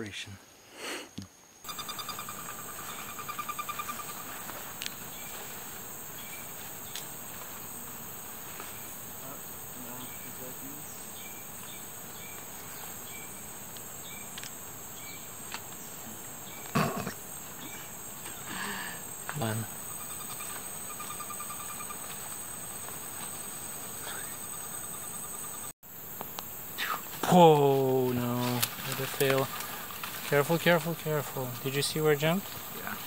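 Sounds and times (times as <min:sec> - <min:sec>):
insect chorus buzzing: 0:00.0 - 0:33.0
rapid pulsed trill: 0:01.7 - 0:04.4.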